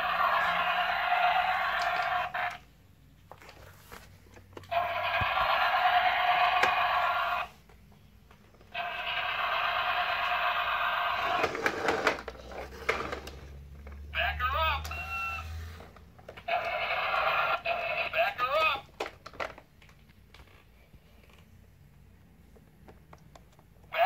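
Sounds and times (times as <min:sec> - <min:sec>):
toy electronic sound effect: 0:00.0 - 0:02.6, 0:04.7 - 0:07.5, 0:08.7 - 0:11.6, 0:16.4 - 0:18.8
toy knocking and scraping on tile: 0:04.6 - 0:07.1, 0:11.1 - 0:14.0.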